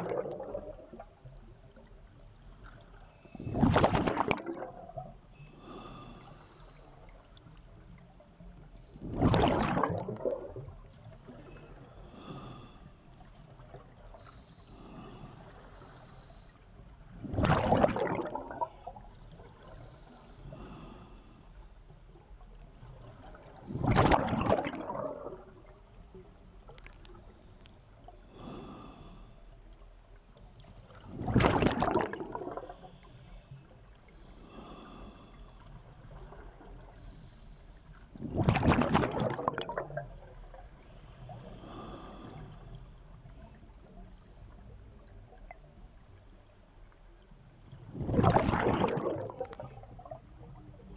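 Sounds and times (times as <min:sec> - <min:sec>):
underwater bubbling exhalations: 0:00.0 - 0:01.2, 0:03.3 - 0:05.2, 0:09.0 - 0:12.6, 0:17.1 - 0:19.0, 0:23.4 - 0:25.7, 0:31.0 - 0:32.9, 0:38.2 - 0:40.6, 0:47.9 - 0:50.4.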